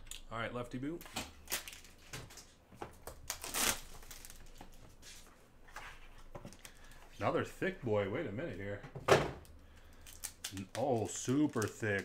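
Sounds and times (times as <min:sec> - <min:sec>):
foil wrapper crinkling: 0:03.2 - 0:04.8, 0:09.7 - 0:12.0.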